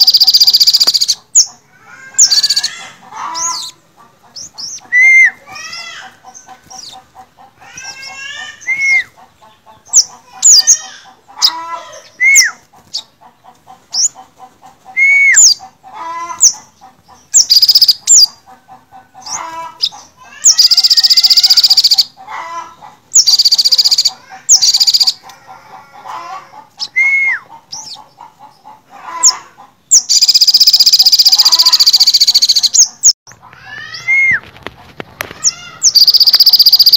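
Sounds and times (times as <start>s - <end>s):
birds chirping and whistling: 0.0s - 25.4s, 26.1s - 34.6s, 35.2s - 36.9s
rapid buzzing bird trills: 35.7s - 36.9s.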